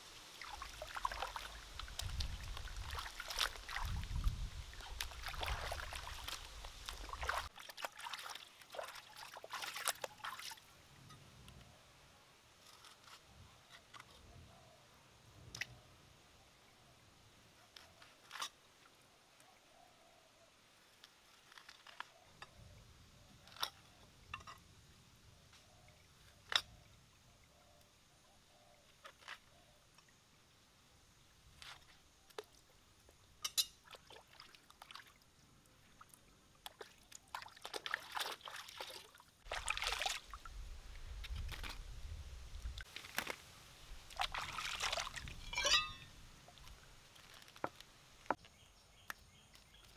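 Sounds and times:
water splashing and dripping: 0.2s - 10.7s, 31.8s - 48.4s.

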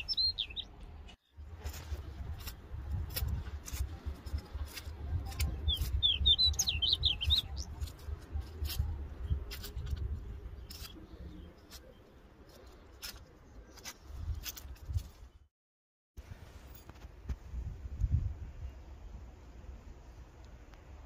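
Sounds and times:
small bird twittering: 0.0s - 0.7s, 5.3s - 8.0s
hand trowel scraping soil: 1.4s - 15.2s.

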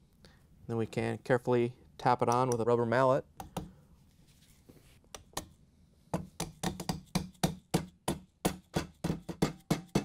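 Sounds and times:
rubber mallet tapping metal: 6.2s - 10.0s.

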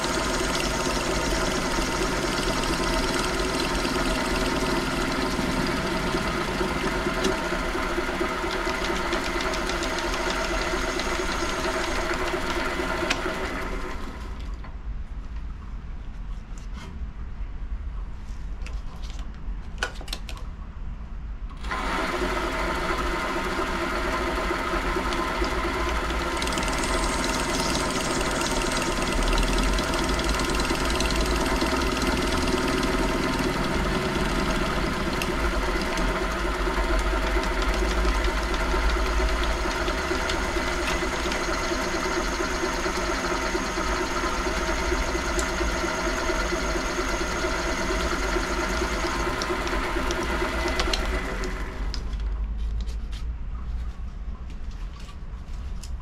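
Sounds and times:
bench lathe humming: 0.0s - 14.3s, 21.7s - 52.0s.

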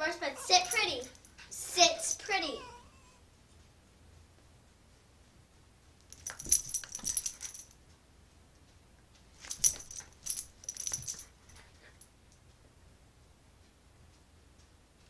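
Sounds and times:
dog collar tag jingling: 0.4s - 2.8s, 6.1s - 7.7s, 9.4s - 12.0s.

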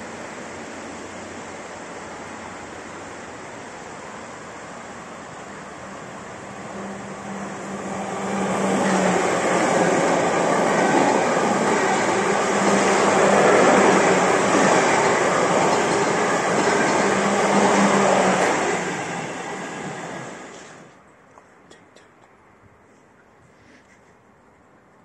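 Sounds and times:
electric train passing: 0.0s - 21.0s.

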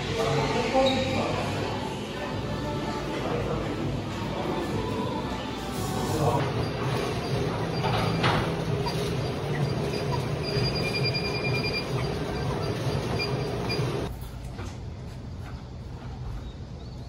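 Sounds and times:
treadmill motor and belt whirring: 5.9s - 17.0s.

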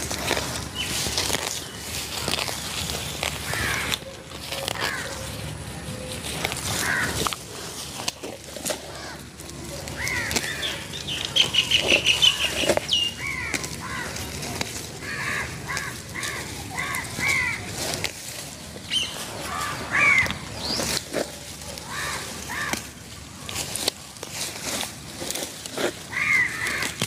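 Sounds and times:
weeds being pulled up: 0.0s - 27.0s
crows cawing: 2.1s - 5.3s, 6.6s - 8.0s, 8.6s - 18.0s, 18.9s - 20.7s, 21.7s - 24.8s, 25.7s - 27.0s.

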